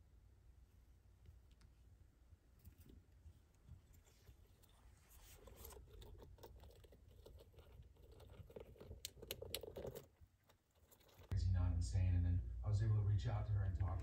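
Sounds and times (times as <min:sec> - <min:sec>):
hamster nibbling food: 0:00.9 - 0:11.5.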